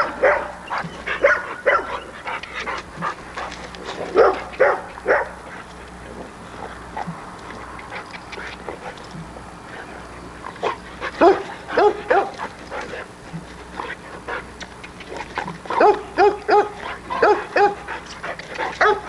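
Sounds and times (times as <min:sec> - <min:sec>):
dog barking and yipping: 0:00.0 - 0:02.2, 0:04.0 - 0:05.4, 0:10.6 - 0:12.9, 0:15.7 - 0:19.0.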